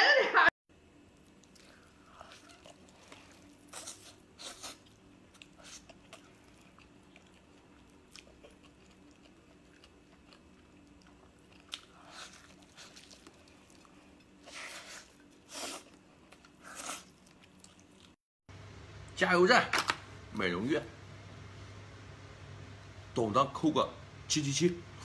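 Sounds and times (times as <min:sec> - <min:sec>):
person chewing meat: 0:01.0 - 0:18.2.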